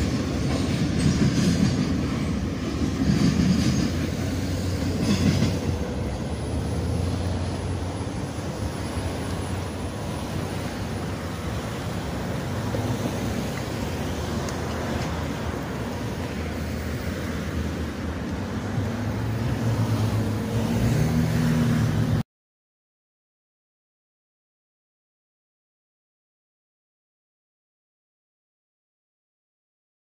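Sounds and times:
freight train rumbling: 0.0 - 22.2
train engine drone: 0.0 - 22.2.

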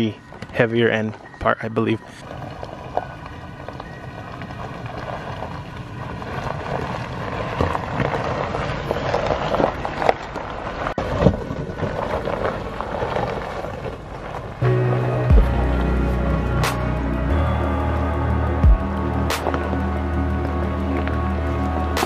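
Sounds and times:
tyres crunching over gravel: 0.0 - 22.0
stones knocking under tyres: 2.3 - 14.6.

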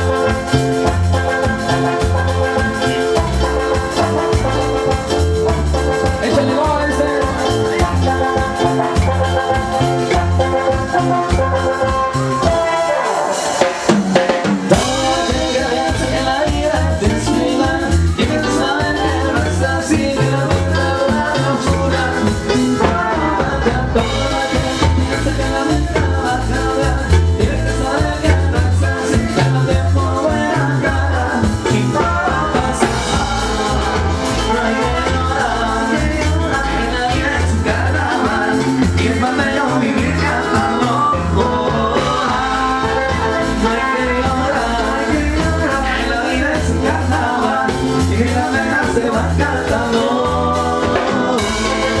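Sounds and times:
drum kit beat: 0.0 - 52.0
keyboard chords and melody: 0.0 - 52.0.

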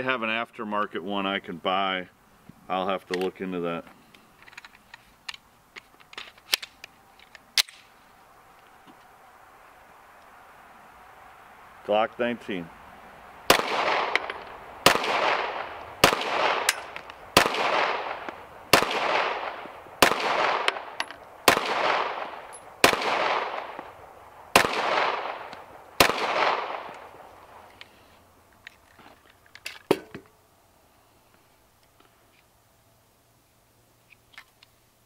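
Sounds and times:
metallic clicks of pistol handling: 3.0 - 3.3, 4.1 - 7.9, 28.5 - 30.2, 34.1 - 34.8
pistol shots echoing: 13.5 - 23.9, 24.5 - 27.2.

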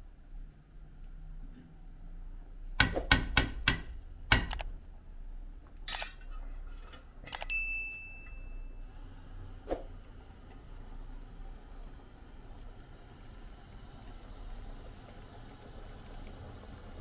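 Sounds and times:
ringing metal clink: 7.5 - 8.8.

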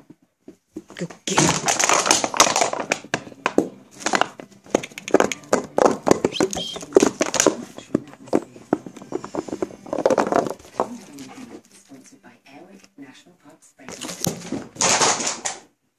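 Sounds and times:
dog biting plastic bottle: 1.0 - 11.6, 13.9 - 15.6.

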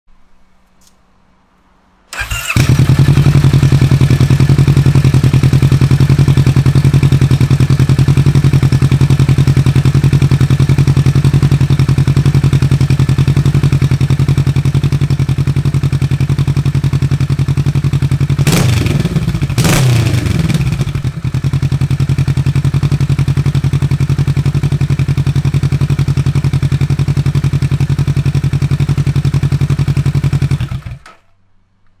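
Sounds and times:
motorcycle engine idling and revving: 2.1 - 31.2.

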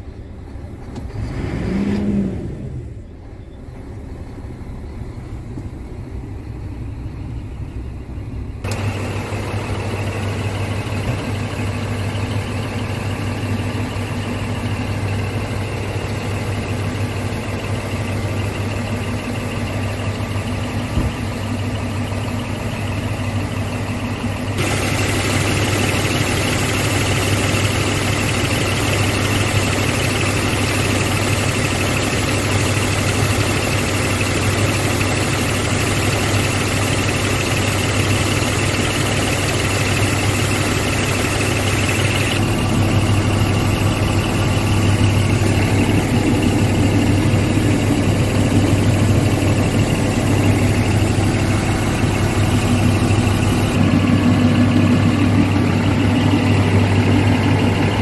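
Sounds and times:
truck diesel engine idling: 0.0 - 1.8, 2.4 - 58.0.

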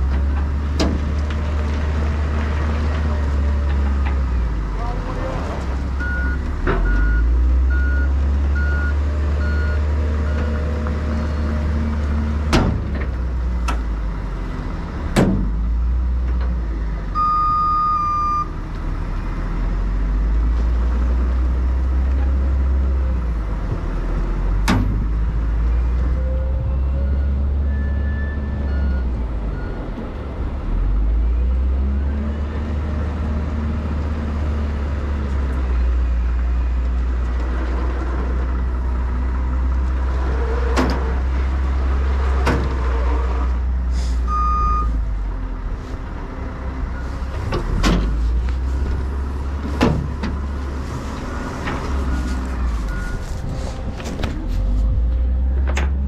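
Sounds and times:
truck diesel engine running: 44.8 - 56.0.

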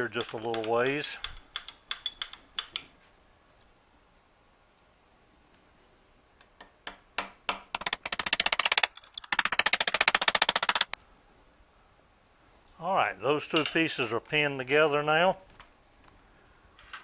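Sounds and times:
hammer striking metal pin: 0.1 - 2.9.

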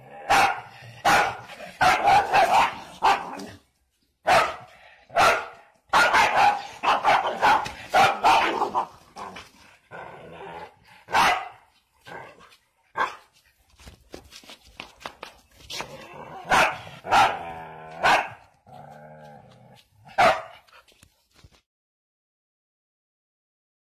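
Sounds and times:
dog barking: 0.3 - 3.4, 4.2 - 8.9, 11.1 - 11.7, 13.0 - 13.3, 16.4 - 18.4, 20.2 - 20.7.

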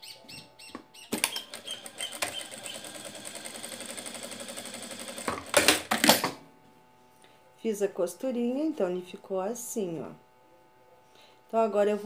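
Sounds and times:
sewing machine stitching: 1.2 - 6.4.

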